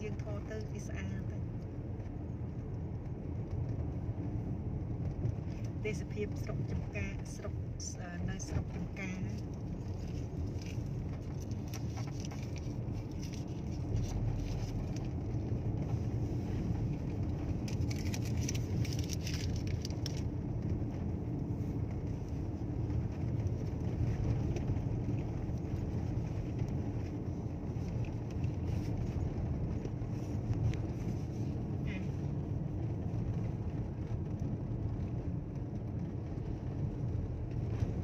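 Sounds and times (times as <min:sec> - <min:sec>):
engine and tyre rumble: 0:00.0 - 0:38.0
light clicks and rattles: 0:08.5 - 0:20.9.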